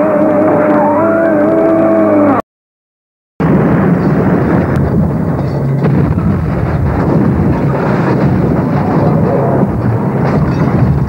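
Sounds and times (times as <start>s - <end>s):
rumbling vehicle noise: 3.4s - 11.0s.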